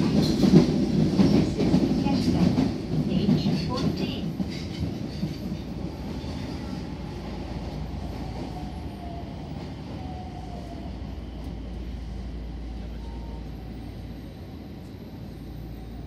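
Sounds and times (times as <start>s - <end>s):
low train rumble: 0.0s - 16.0s.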